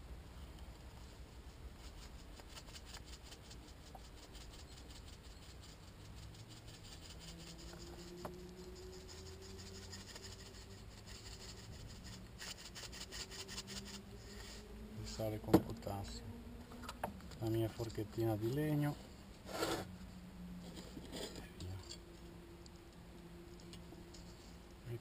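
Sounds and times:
salt grains rattling: 0:01.8 - 0:14.5
faint low hum rising in pitch: 0:13.2 - 0:25.0.

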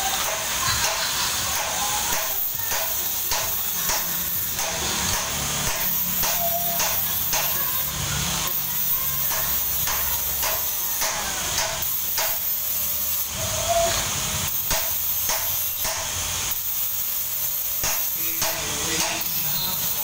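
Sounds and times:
arc welding hiss and crackles: 0:00.0 - 0:20.0.

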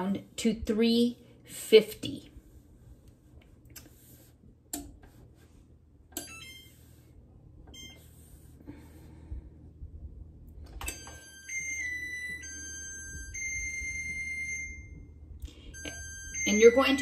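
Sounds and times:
electronic melody tones: 0:10.8 - 0:17.0.

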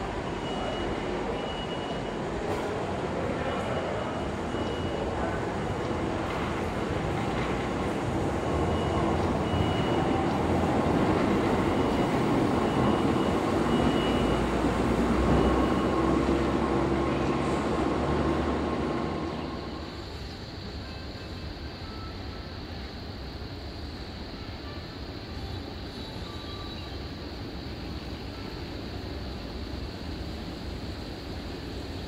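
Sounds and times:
funicular car rumbling on rails: 0:00.0 - 0:23.0.

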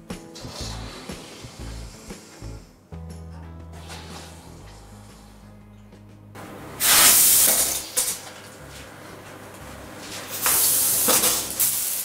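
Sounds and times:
sprayer hissing: 0:00.4 - 0:02.7, 0:06.8 - 0:08.2, 0:10.2 - 0:12.0.

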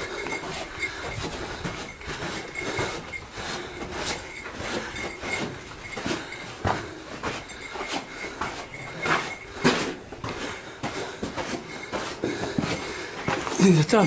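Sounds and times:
footsteps on gravel and rock: 0:00.0 - 0:14.0.

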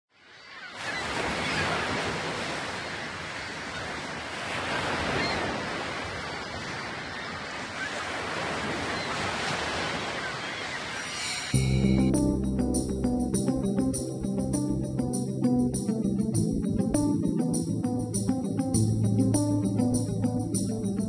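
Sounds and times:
ocean waves surf: 0:00.2 - 0:12.4.

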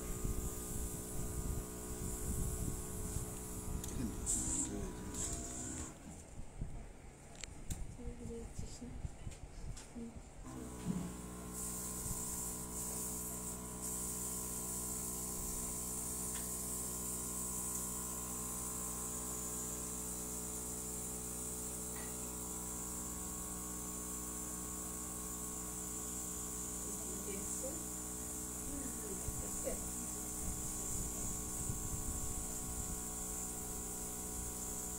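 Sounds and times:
airbrush air hiss: 0:00.0 - 0:06.0, 0:10.8 - 0:34.9
compressor electric hum: 0:00.0 - 0:34.9.

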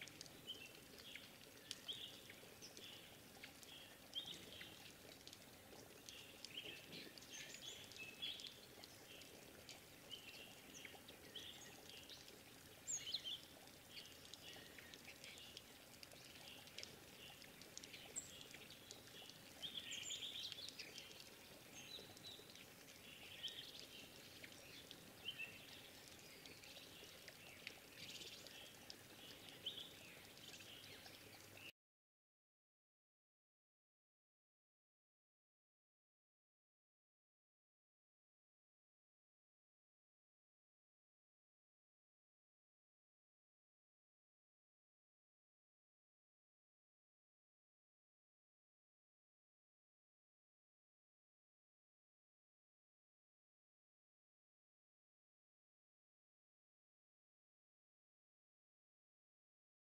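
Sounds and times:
birds chirping: 0:10.0 - 0:31.7.

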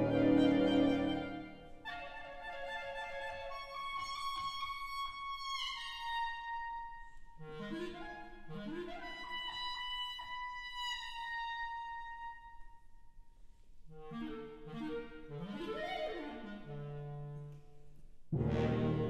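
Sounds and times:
clarinet holding high note: 0:00.0 - 0:02.1
wind band playing: 0:00.0 - 0:02.1, 0:18.3 - 0:19.0.

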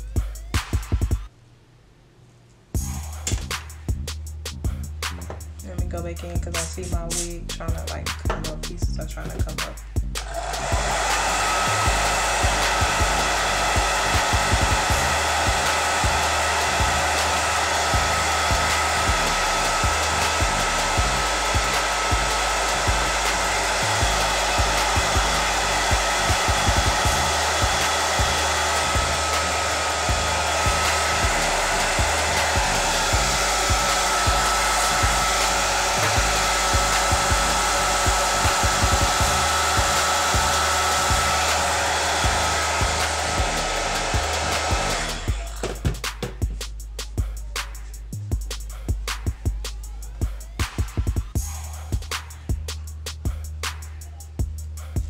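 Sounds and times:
hair dryer running: 0:05.2 - 0:46.6, 0:50.6 - 0:52.7.

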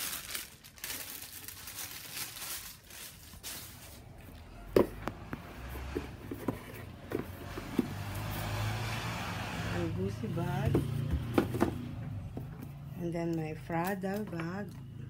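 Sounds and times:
rustling handling noise: 0:00.0 - 0:08.4.

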